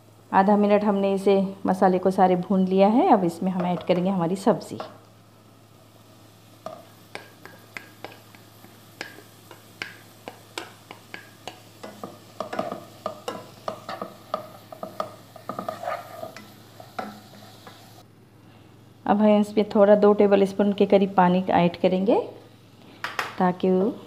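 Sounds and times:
faint sizzle of frying: 0:00.0 - 0:24.0
wooden spatula scraping a pan: 0:14.7 - 0:17.8.

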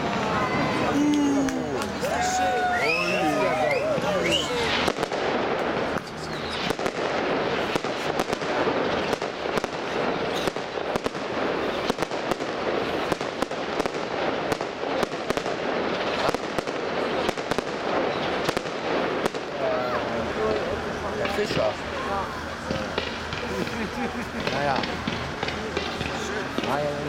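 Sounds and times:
steady noise: 0:00.0 - 0:27.0
firework shells bursting: 0:04.3 - 0:19.6, 0:22.6 - 0:27.0.

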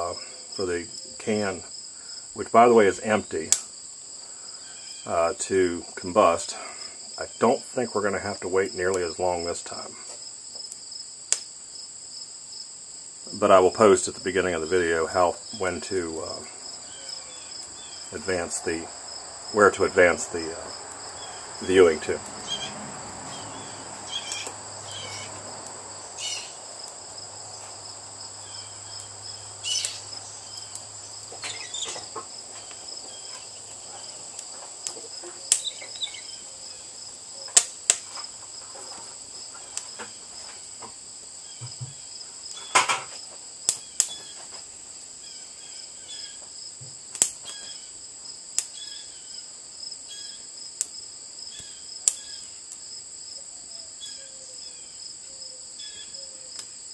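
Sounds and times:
burning wood popping and crackling: 0:00.0 - 0:49.0, 0:50.7 - 0:52.9
crickets chirring: 0:00.0 - 0:56.9.

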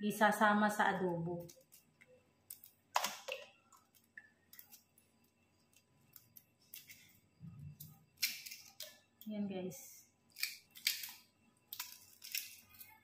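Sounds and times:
egg shell cracking: 0:01.4 - 0:05.0, 0:07.8 - 0:09.1, 0:10.3 - 0:13.0.

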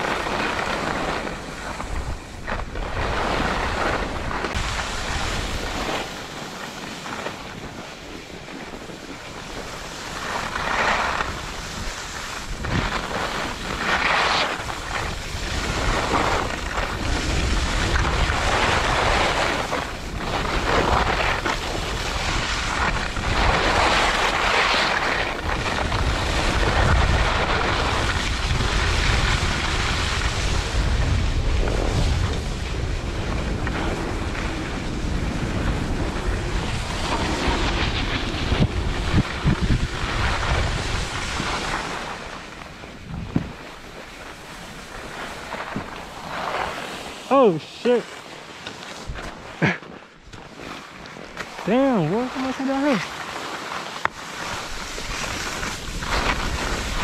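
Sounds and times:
wind buffeting microphone: 0:00.0 - 0:47.3, 0:54.2 - 0:57.0
skis scraping packed snow: 0:00.0 - 0:57.0.

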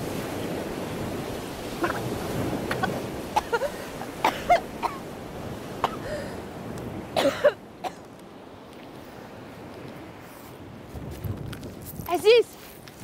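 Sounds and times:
surf: 0:00.0 - 0:13.0
wind: 0:00.0 - 0:13.0
woman coughing and gasping: 0:02.7 - 0:05.0, 0:05.8 - 0:06.1, 0:07.2 - 0:08.0.

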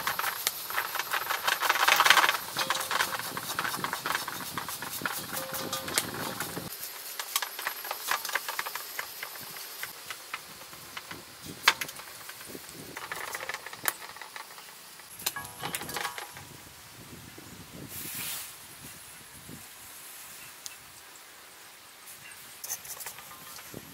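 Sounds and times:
knife scraping scales: 0:00.3 - 0:09.0, 0:22.6 - 0:23.9.

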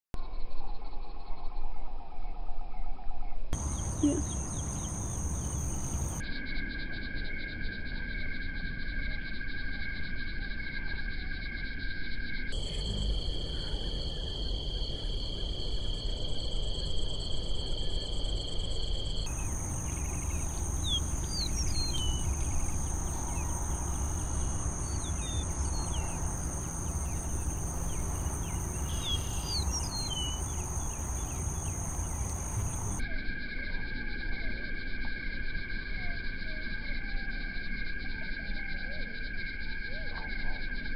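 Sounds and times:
deep bullfrog calls: 0:03.6 - 0:06.2, 0:12.5 - 0:16.9, 0:19.2 - 0:33.0
high insect drone: 0:03.6 - 0:40.9.

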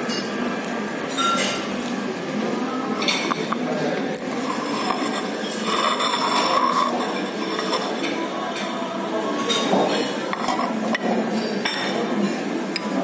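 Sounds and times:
cutlery and dishes clinking: 0:01.1 - 0:01.7, 0:04.3 - 0:08.7, 0:09.4 - 0:13.0.

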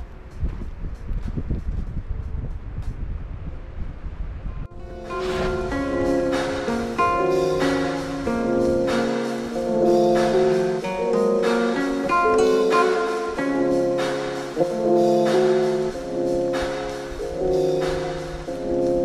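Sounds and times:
instrumental background music: 0:04.7 - 0:19.0.

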